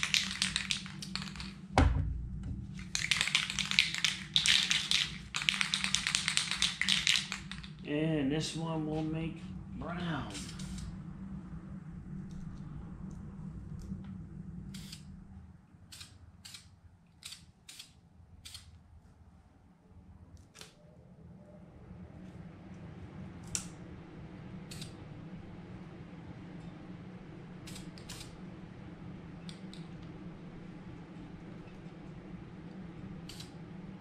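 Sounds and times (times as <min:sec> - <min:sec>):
spray paint can hissing: 0:00.0 - 0:01.5, 0:02.8 - 0:07.8, 0:27.7 - 0:28.3
low hum: 0:00.0 - 0:17.1, 0:19.1 - 0:34.0.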